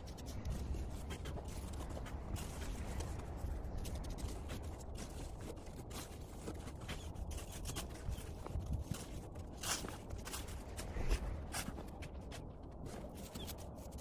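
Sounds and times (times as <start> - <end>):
carving tool scratching snow: 0.0 - 9.2.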